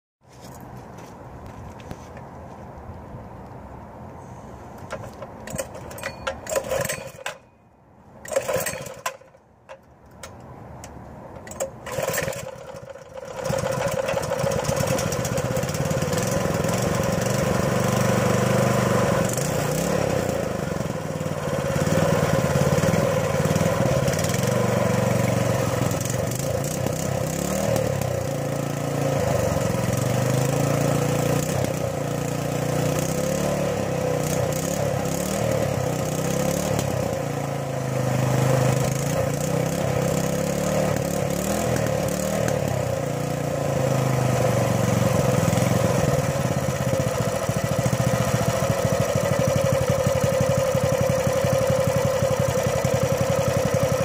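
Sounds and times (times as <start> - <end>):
small engine running: 4.8 - 7.4, 8.2 - 9.4, 11.4 - 54.0.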